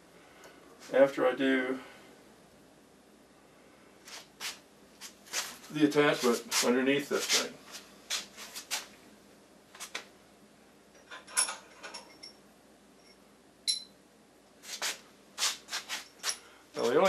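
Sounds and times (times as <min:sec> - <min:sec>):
metal parts clinking: 0:11.0 - 0:12.4
sharp ringing metallic clink: 0:13.0 - 0:14.0.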